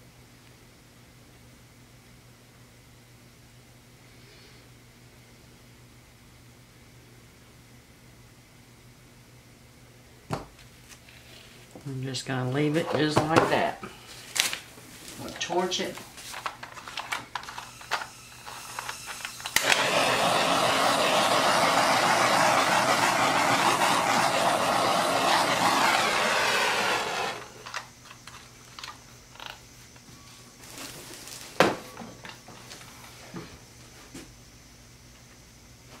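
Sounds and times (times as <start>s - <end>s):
torch click: 17.4s - 27.9s
torch flame hissing: 17.8s - 27.9s.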